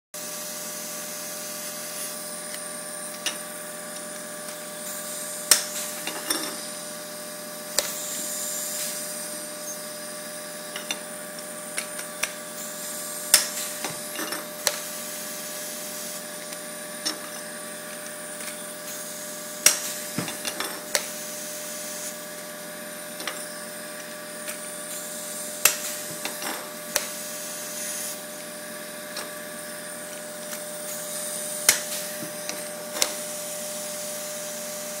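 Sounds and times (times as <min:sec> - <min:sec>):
rivet tool air hiss and hum: 0:00.2 - 0:35.0.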